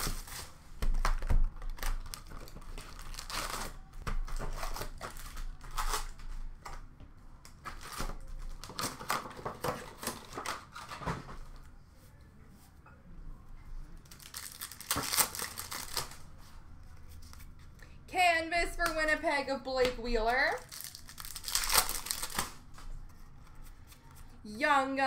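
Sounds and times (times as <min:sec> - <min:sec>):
plastic wrapped packs crinkling: 0:01.6 - 0:06.2, 0:14.1 - 0:16.2, 0:20.5 - 0:22.7.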